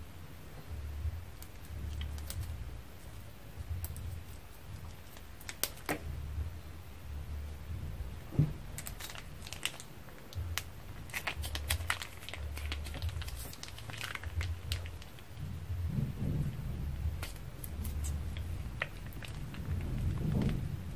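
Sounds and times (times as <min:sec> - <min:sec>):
plastic bag crinkling: 0:01.4 - 0:02.6, 0:08.7 - 0:15.4, 0:17.2 - 0:20.9.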